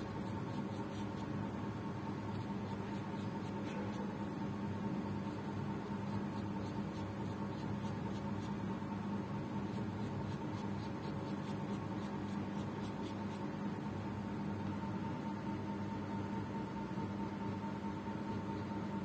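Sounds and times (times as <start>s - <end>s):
paintbrush scratching on paper: 0.0s - 1.3s, 2.3s - 4.1s, 5.2s - 8.6s, 9.6s - 13.4s
steady background hum: 0.0s - 19.0s.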